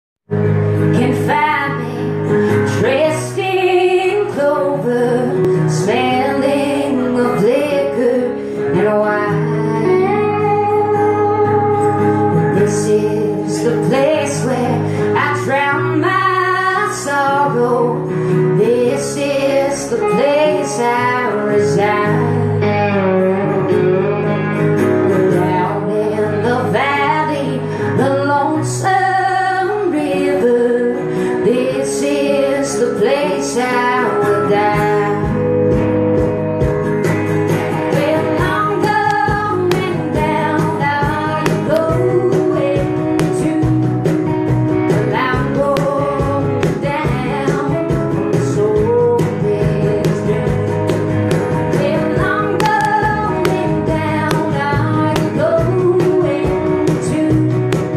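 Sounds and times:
strummed acoustic guitar: 0.4s - 57.9s
woman singing: 0.9s - 23.7s, 25.1s - 35.8s, 37.8s - 57.9s
hand drum beat: 34.8s - 57.9s.

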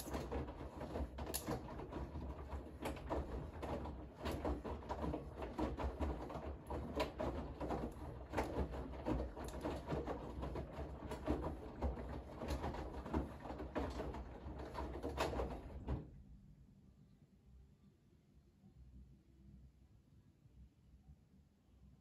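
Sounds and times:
washing machine drum sloshing thumps: 0.0s - 16.2s
washing machine motor hum: 0.0s - 16.2s.

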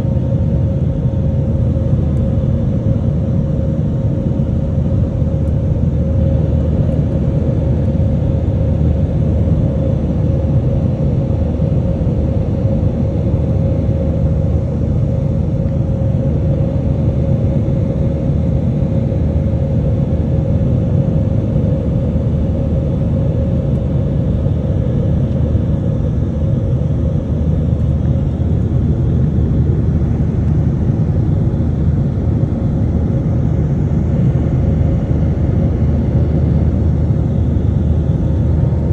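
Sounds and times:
jet engines rumbling in cabin: 0.0s - 38.9s
steady hum: 0.0s - 38.9s.

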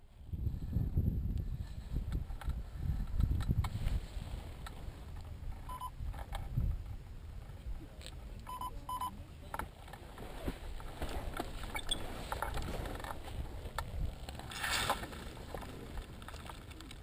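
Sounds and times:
wind buffeting microphone: 0.0s - 8.4s, 10.2s - 17.0s
short electronic beeps: 5.7s - 6.0s, 8.5s - 9.2s, 11.7s - 12.0s.

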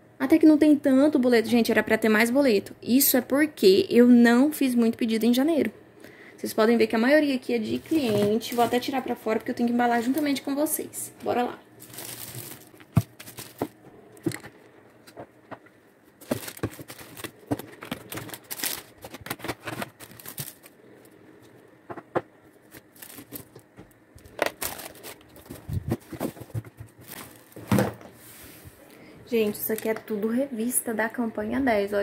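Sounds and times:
plastic wrapping crinkling: 7.6s - 10.5s, 11.2s - 15.3s, 16.1s - 21.2s, 22.5s - 27.7s
items tapping as set down: 21.8s - 22.3s.

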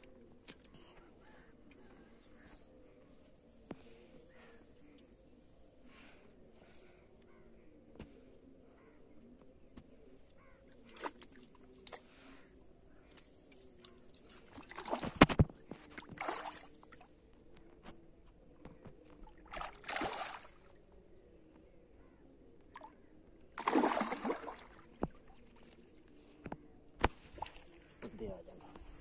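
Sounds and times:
fish splashing at water surface: 23.6s - 24.8s.

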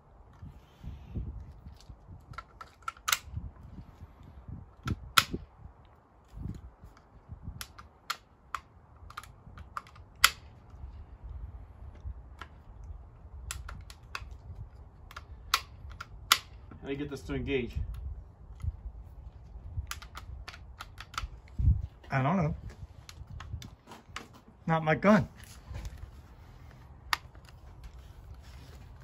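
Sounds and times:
rifle bolt clicking and snapping: 1.8s - 3.4s, 4.8s - 5.4s, 6.4s - 10.8s, 12.4s - 16.7s, 19.8s - 21.6s, 27.1s - 27.9s.

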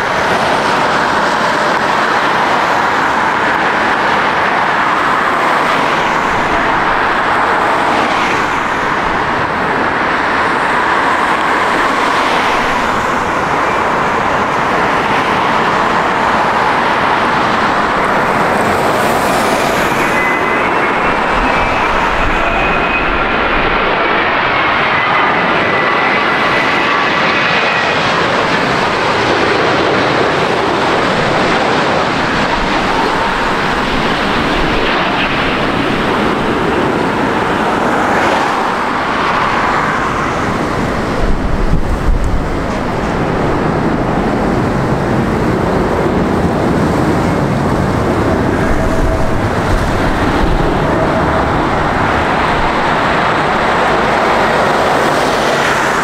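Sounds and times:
jet engines roaring: 0.0s - 56.0s
thin whining tones: 18.0s - 25.8s.

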